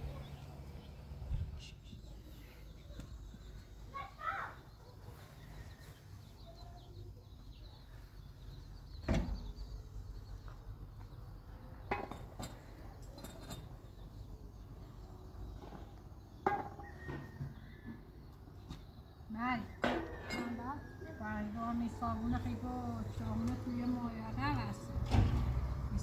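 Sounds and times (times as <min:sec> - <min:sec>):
sharp knocks and clinks: 0:11.8 - 0:14.0, 0:19.8 - 0:20.7.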